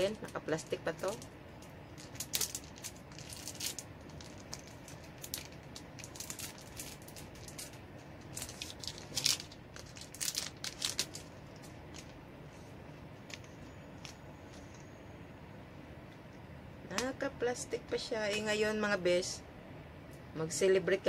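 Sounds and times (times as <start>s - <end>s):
plastic wrapping crinkling: 0.0s - 12.2s.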